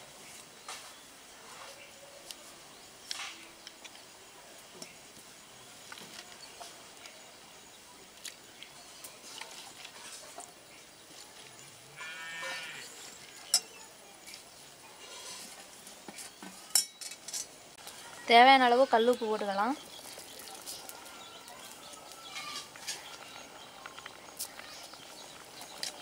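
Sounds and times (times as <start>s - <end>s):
farm animal bleating: 12.0s - 12.9s.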